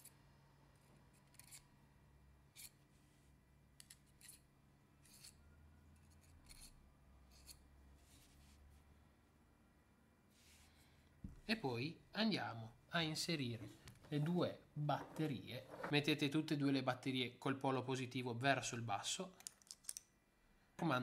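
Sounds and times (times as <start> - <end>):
small metal parts clicking and scraping: 19.4 - 20.0.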